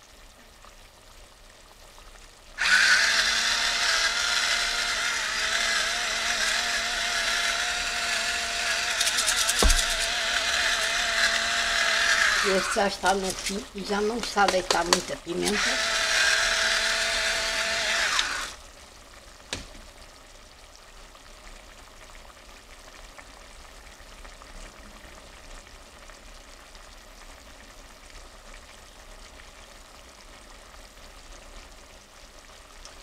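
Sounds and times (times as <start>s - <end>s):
sauce simmering in a pot: 0.0s - 33.0s
electric pepper grinder whirring: 2.6s - 18.6s.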